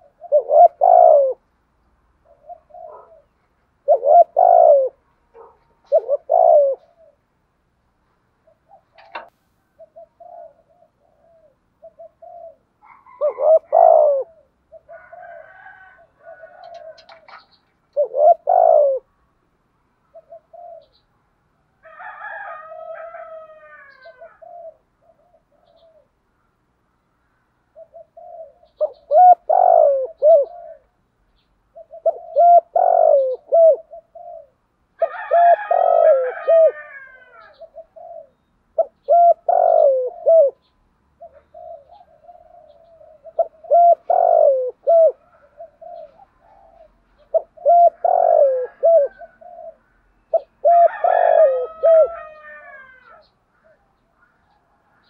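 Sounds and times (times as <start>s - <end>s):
dove cooing: 0.0s - 1.5s, 2.2s - 7.4s, 8.4s - 19.2s, 20.0s - 21.1s, 21.8s - 26.2s, 27.7s - 31.1s, 31.7s - 55.0s.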